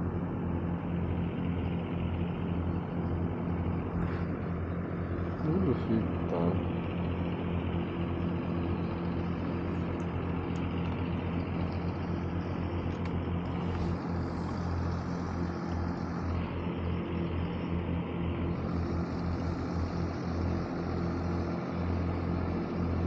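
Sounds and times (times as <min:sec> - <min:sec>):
steady engine drone: 0:00.0 - 0:23.0.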